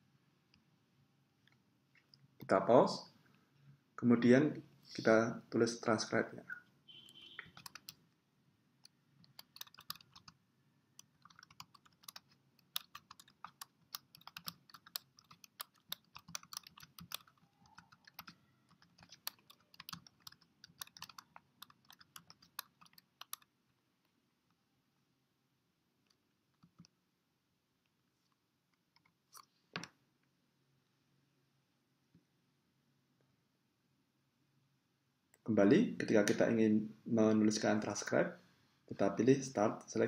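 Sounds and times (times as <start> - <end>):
typing on a keyboard: 7.4 - 8.0, 9.2 - 10.4, 11.0 - 23.5.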